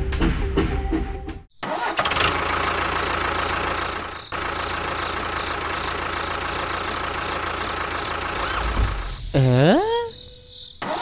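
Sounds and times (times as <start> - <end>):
engine idling: 2.1 - 9.2.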